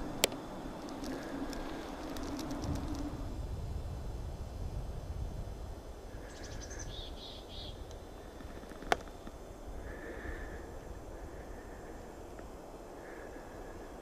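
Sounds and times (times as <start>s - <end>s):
bird chirps: 6.2s - 7.8s.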